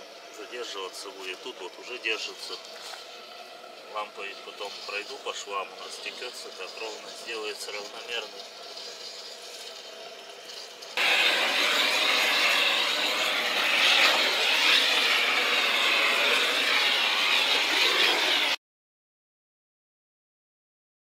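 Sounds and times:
gas torch hissing: 0.0 - 18.6.

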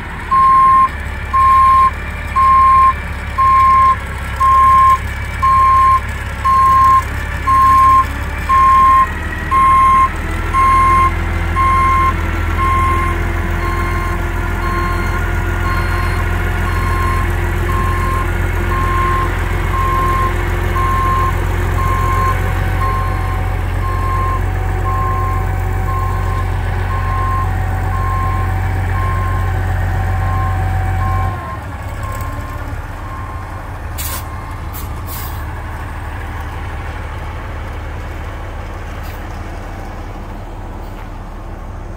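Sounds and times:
diesel engine under load: 0.0 - 41.9
reversing alarm beeping: 0.3 - 32.3.

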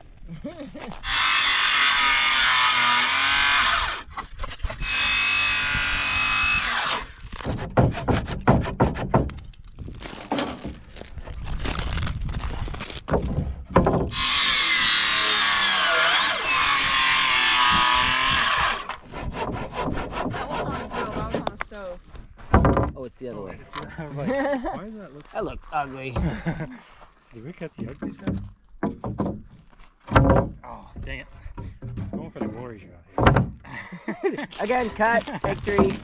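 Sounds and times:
power saw cutting wood: 1.0 - 4.1, 4.7 - 9.0, 14.1 - 21.6
wood knocking and rattling: 7.4 - 9.6, 13.0 - 14.4, 18.9 - 21.6, 22.3 - 23.0, 27.8 - 33.7, 35.3 - 36.0.

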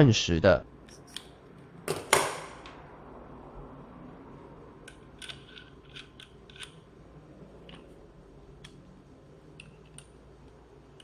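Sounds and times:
metal tool clicking: 4.9 - 6.8.

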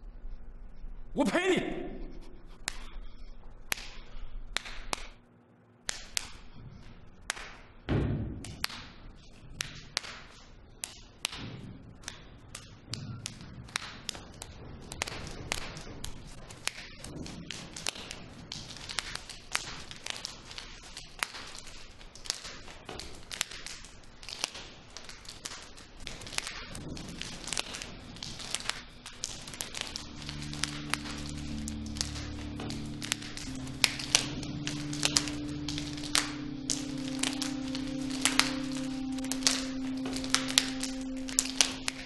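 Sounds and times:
sharp knocks and slaps: 5.9 - 18.7
heavy thud: 7.9 - 8.5.

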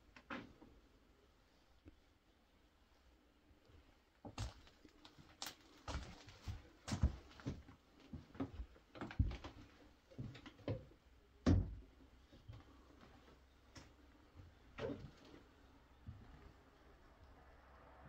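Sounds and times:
footsteps on hard surface: 5.9 - 10.3.

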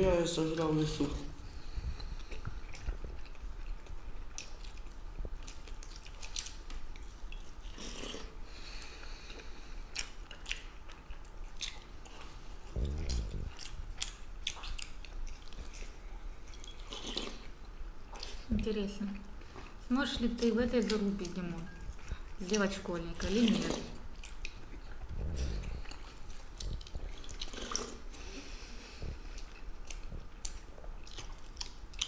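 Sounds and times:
people chewing fried meat: 1.4 - 32.0
low voice: 12.8 - 13.5.

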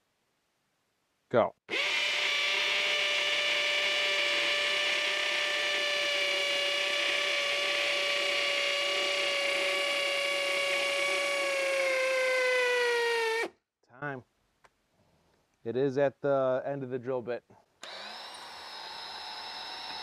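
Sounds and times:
hammer drill boring into concrete: 1.7 - 13.5, 17.8 - 20.0.

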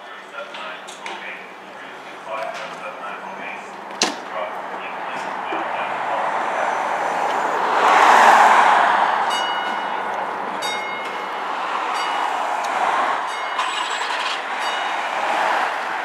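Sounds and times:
diesel engine running: 8.7 - 16.0.

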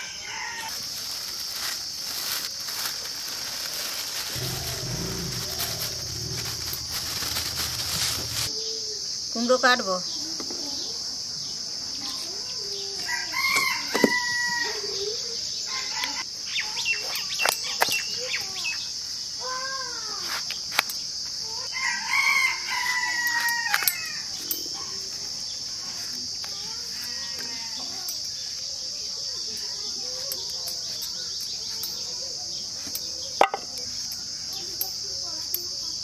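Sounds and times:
rooster crowing: 0.0 - 0.8, 21.7 - 24.2
insect chorus: 0.0 - 36.0.

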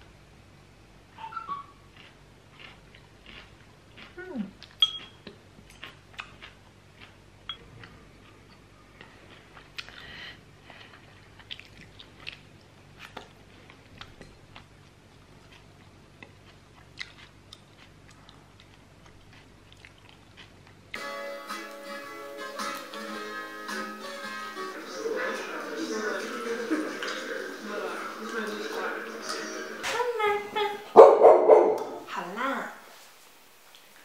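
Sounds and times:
person chewing: 1.8 - 21.8
guitar music: 21.0 - 30.6.

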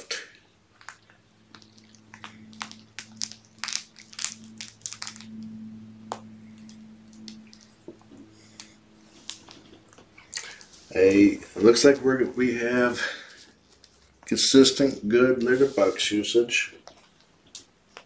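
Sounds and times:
steady low hum: 0.0 - 18.0
sharp clicks and crunches: 0.7 - 5.4.

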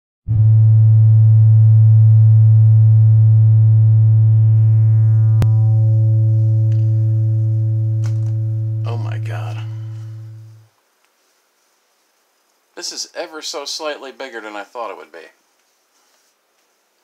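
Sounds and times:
low electronic drone note: 0.3 - 10.7.

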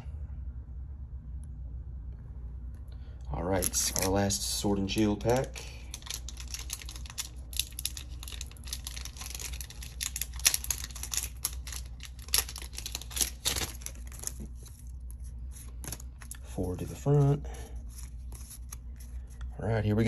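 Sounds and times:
foil wrapper crinkling: 3.6 - 19.4
cards rustling: 3.6 - 20.0.

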